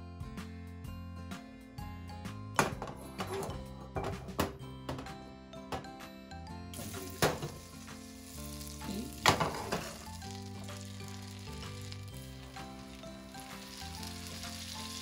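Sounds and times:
butter sizzling in a frying pan: 6.7s - 15.0s.

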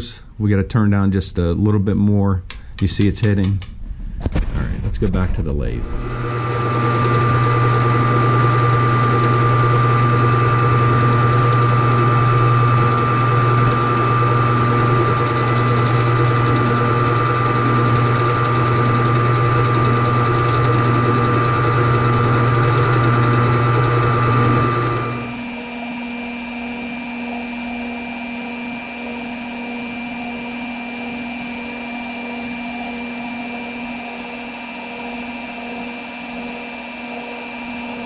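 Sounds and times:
metal lathe hum and whine: 5.9s - 38.0s.

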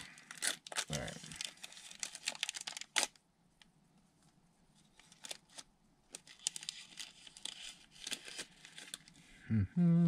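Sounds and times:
wrapper crinkling: 0.0s - 3.2s, 4.8s - 9.3s.

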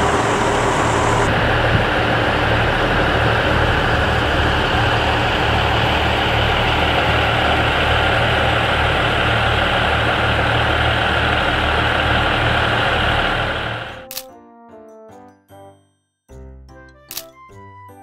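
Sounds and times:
diesel engines idling: 0.0s - 14.0s.

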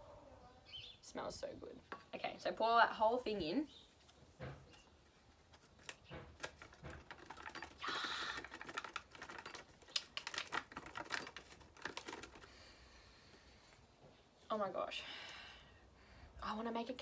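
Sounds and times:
powder sachet being tapped: 5.6s - 12.5s
foil sachet crinkling: 5.7s - 12.7s.

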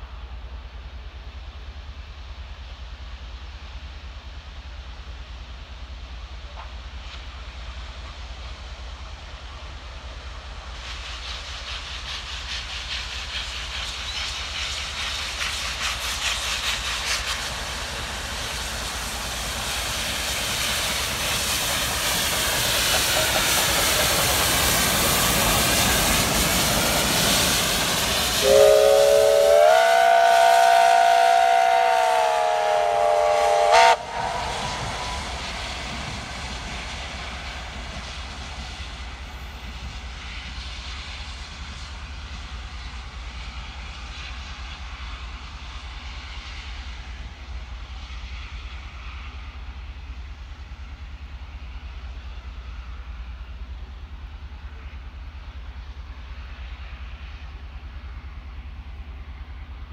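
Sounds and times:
steam train running: 0.0s - 59.9s
steam whistle chord: 27.6s - 35.8s.

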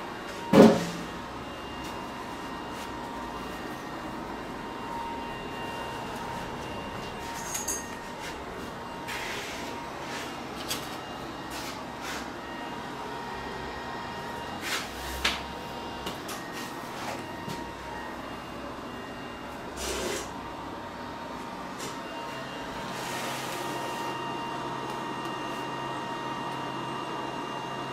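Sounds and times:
workshop background hum: 0.0s - 27.9s.

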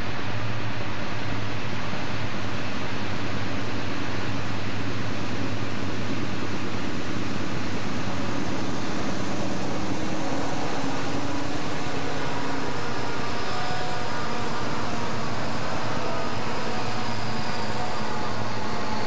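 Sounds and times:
diesel locomotives passing: 7.9s - 19.0s.

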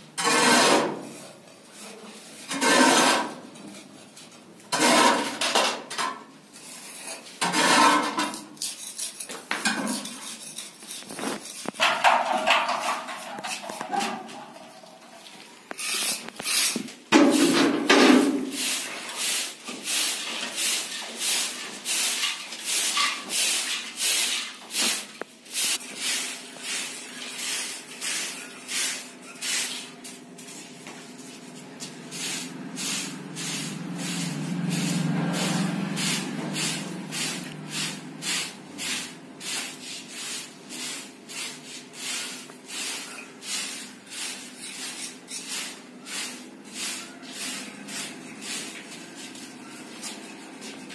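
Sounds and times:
hand tool scraping plaster: 0.2s - 1.2s, 2.5s - 3.4s, 4.7s - 5.4s, 6.6s - 14.3s, 15.7s - 25.1s, 31.8s - 50.8s.

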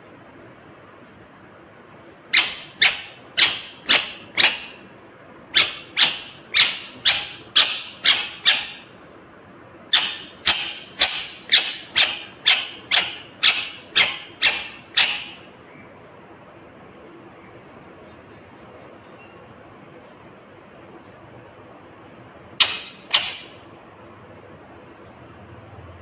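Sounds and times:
parakeet harsh calls: 2.3s - 8.9s, 9.9s - 15.8s, 22.6s - 23.8s.

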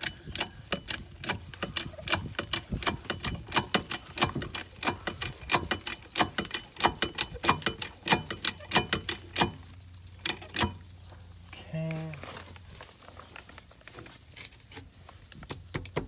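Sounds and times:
bottle jack clicking: 0.0s - 10.9s.

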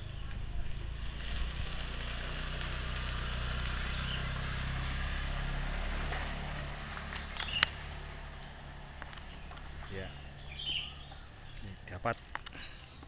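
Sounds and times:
distant engine running: 0.0s - 12.9s
sharp clicks: 7.0s - 7.8s.

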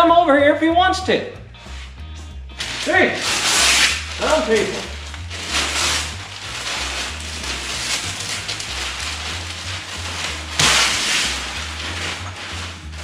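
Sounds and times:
background music with bass: 0.0s - 13.0s
paper and tape crinkling off: 2.6s - 13.0s
paper tearing rip: 2.6s - 13.0s.

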